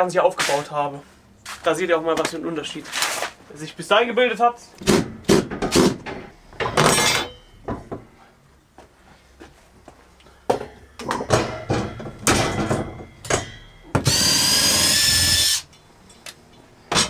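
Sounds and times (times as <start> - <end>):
wire shelf and brackets rattling: 4.8 - 8.1, 10.5 - 14.0.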